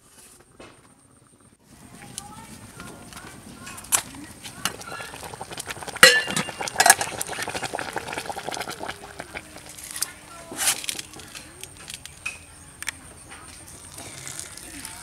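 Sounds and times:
rice boiling in pot: 0.0s - 12.4s, 13.6s - 15.0s
pot knocking on grill: 4.6s - 8.9s.

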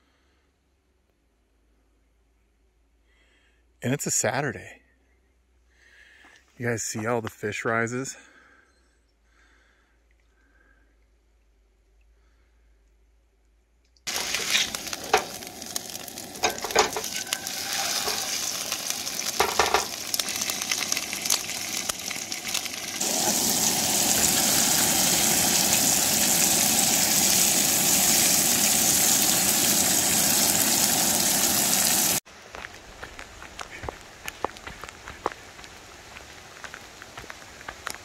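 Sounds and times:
fish sizzling in oil: 14.1s - 32.2s.

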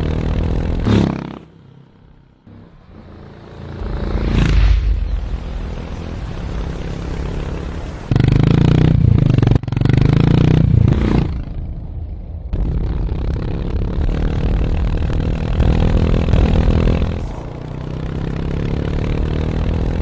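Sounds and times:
motorcycle engine and exhaust: 0.0s - 20.0s.

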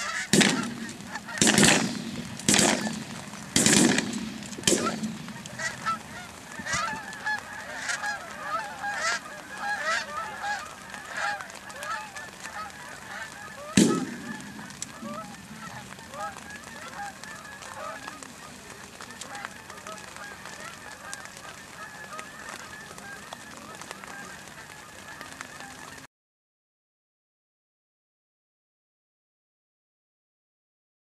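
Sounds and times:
geese honking: 0.0s - 26.1s
shotgun blast: 0.3s - 5.4s, 13.8s - 15.7s.

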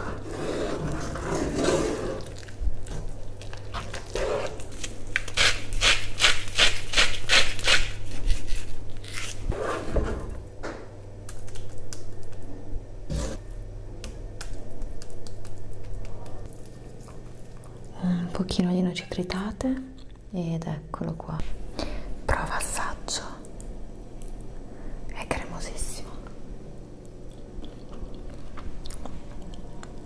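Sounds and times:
wooden spoon scraping a pan: 0.0s - 2.3s.

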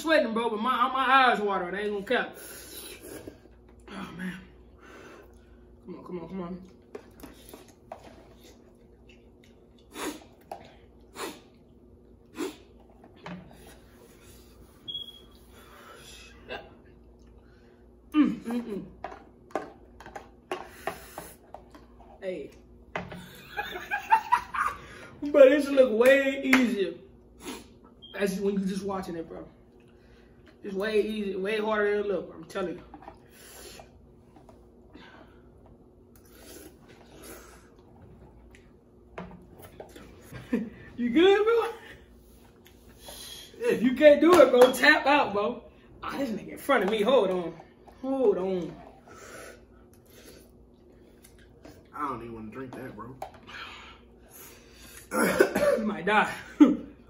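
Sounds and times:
person sucking breaths and slurping: 9.8s - 13.0s, 36.2s - 38.1s.

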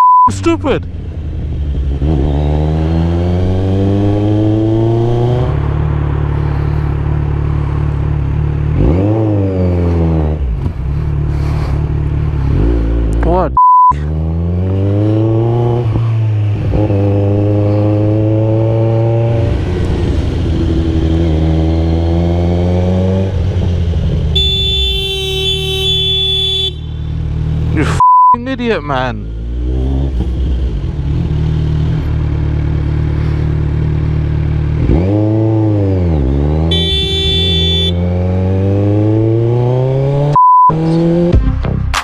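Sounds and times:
censor bleep: 0.0s - 0.3s, 13.6s - 14.0s, 28.0s - 28.4s, 40.4s - 40.8s
motorcycle engine accelerating: 0.8s - 13.4s, 14.0s - 24.5s, 29.2s - 41.5s.

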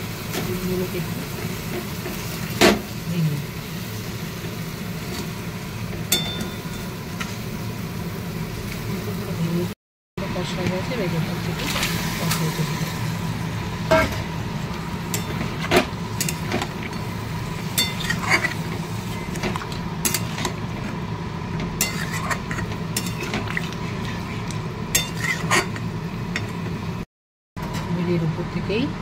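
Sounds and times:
metal spatula scraping a pan: 17.7s - 19.4s, 21.8s - 25.9s.

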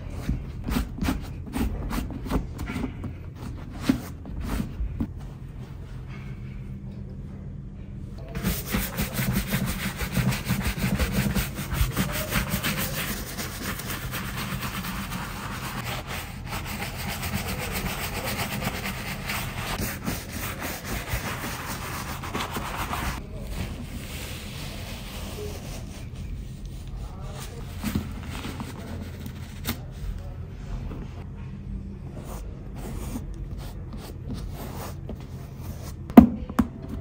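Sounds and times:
brush scrubbing leather boot: 8.4s - 23.2s
paper towel rubbing leather: 8.4s - 30.3s.

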